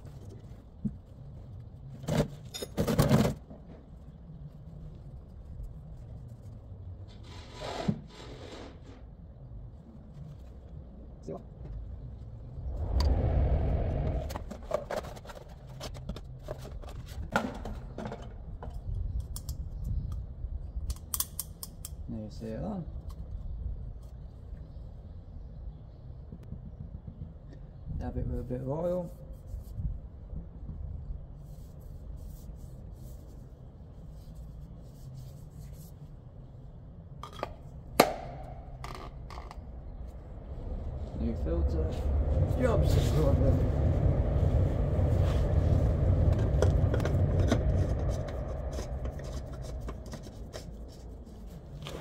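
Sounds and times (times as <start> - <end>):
steady low hum: 9.0 - 20.9, 22.8 - 52.0
low rumble: 11.8 - 16.4, 38.3 - 52.0.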